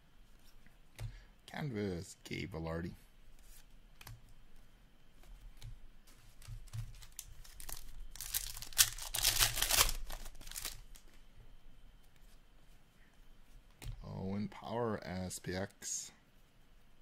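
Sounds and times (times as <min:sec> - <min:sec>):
foil wrapper tearing and crinkling: 0:06.9 - 0:11.0.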